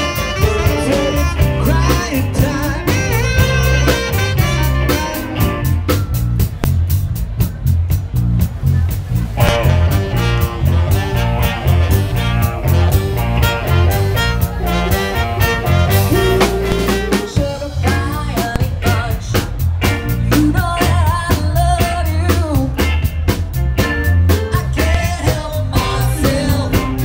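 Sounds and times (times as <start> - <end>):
live soul band playing: 0.0 - 27.0.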